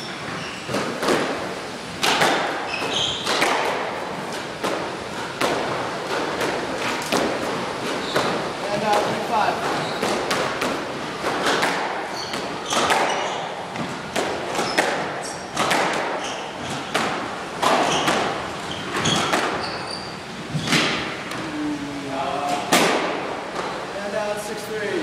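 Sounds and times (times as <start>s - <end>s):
sneakers squeaking on wooden floor: 0.0s - 1.0s, 2.6s - 3.5s, 7.7s - 10.4s, 12.1s - 16.9s, 17.6s - 21.3s
squash ball smacking: 0.7s - 19.7s, 22.6s - 23.8s.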